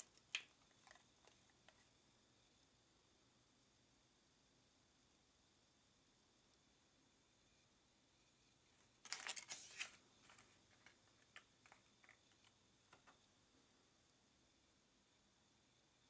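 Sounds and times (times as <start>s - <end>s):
plastic packaging crinkling: 0.0s - 1.8s, 9.0s - 12.5s.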